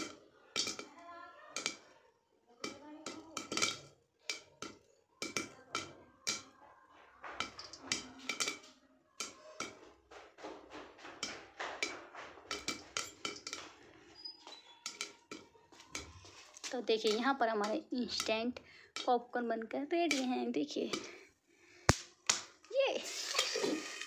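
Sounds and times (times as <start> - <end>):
popcorn knocking against lid: 0.0 - 0.9, 2.6 - 6.6, 7.2 - 13.9, 17.0 - 18.4
popcorn popping in covered pan: 0.0 - 22.6.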